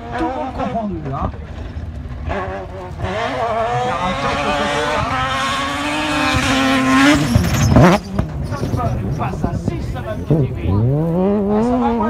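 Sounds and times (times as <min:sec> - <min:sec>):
rally car engine passing by: 0:00.0 - 0:12.0.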